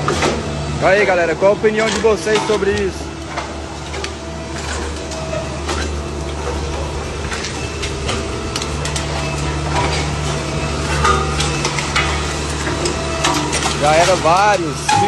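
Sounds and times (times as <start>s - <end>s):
diesel engine running: 0.0s - 15.0s
metal being crushed: 1.4s - 15.0s.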